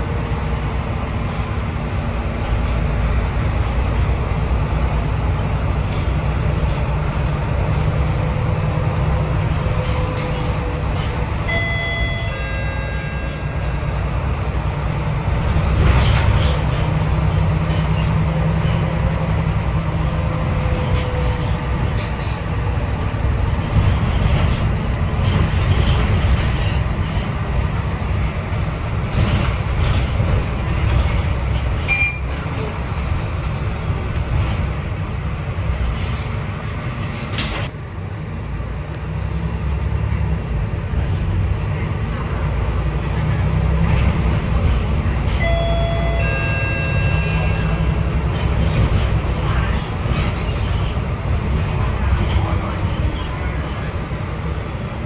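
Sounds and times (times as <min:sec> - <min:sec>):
bus engine and road rumble: 0:00.0 - 0:55.0
rattles and knocks: 0:13.2 - 0:35.1.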